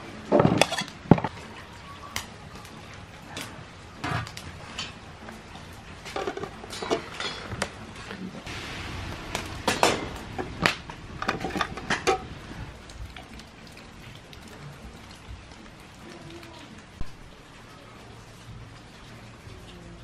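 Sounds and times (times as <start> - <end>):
steel pots clinking and knocking: 0.3 - 1.4, 3.4 - 5.1, 5.7 - 7.8, 9.3 - 13.9.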